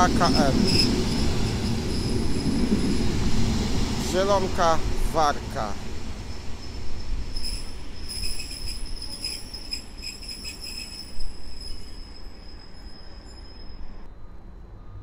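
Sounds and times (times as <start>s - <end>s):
train rumble with high whine: 0.0s - 15.0s
train wheels clicking: 6.1s - 13.7s.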